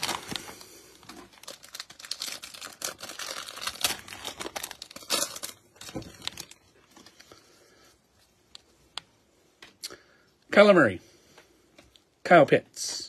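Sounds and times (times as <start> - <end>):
plastic wrapper tearing and crinkling: 0.0 - 7.3.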